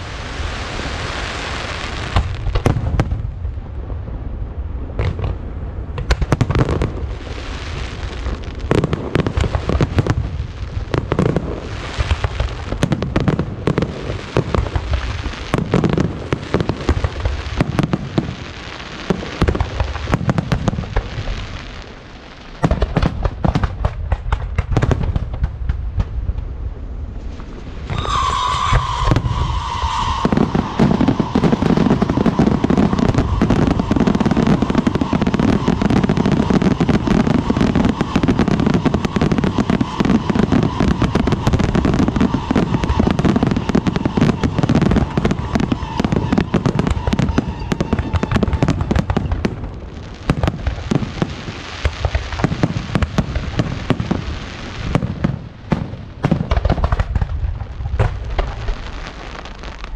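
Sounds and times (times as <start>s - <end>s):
fireworks bursting and crackling: 0.0s - 59.9s
steady whistling tone: 27.9s - 36.6s.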